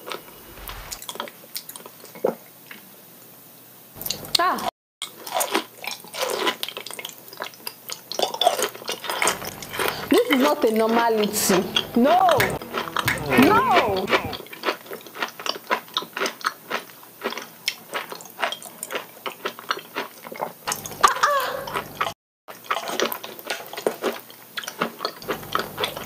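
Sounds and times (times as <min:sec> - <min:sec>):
wet chewing and smacking: 0:05.0 - 0:11.0, 0:14.2 - 0:26.0
short vocal sound: 0:11.7 - 0:14.4.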